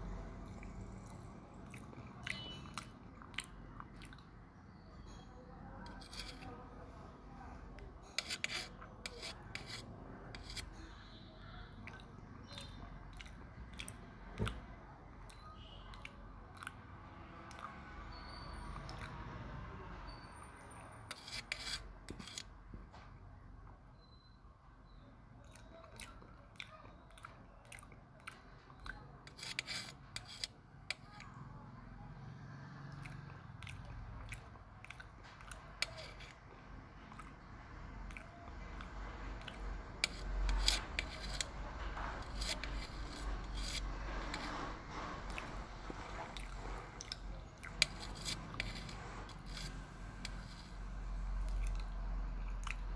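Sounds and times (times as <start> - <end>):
person chewing food: 0.1 - 5.1, 8.0 - 16.8, 17.4 - 19.3, 24.8 - 31.3, 32.8 - 52.9
spoon scraping steel plate: 5.8 - 6.6, 8.0 - 11.2, 21.0 - 22.5, 29.2 - 31.1, 35.8 - 36.4, 39.4 - 46.6, 47.2 - 50.9.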